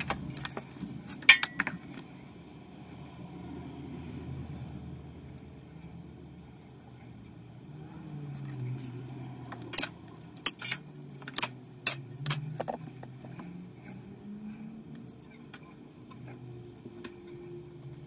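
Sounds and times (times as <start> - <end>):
metallic clicks and clinks: 6.2 - 15.4.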